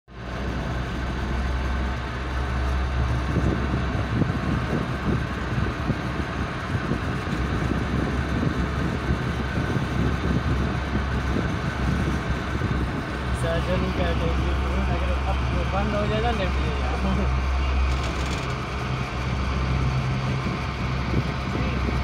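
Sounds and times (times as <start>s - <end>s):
chairlift humming and rumbling: 0.1s - 22.0s
rough crackle: 17.8s - 19.0s.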